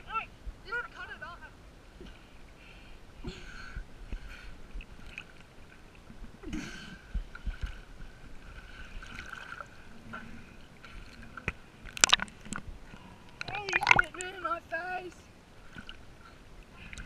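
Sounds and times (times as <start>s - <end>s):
water sloshing and lapping: 0.7s - 17.0s
sharp splashes: 13.4s - 14.4s.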